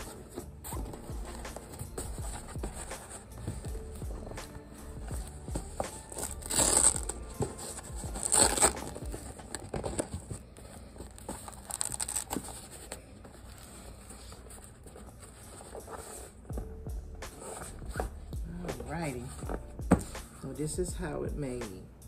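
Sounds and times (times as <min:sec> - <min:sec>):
hand rubbing and patting fabric: 0:00.0 - 0:09.6
velcro rasps: 0:04.2 - 0:10.3, 0:11.0 - 0:16.4.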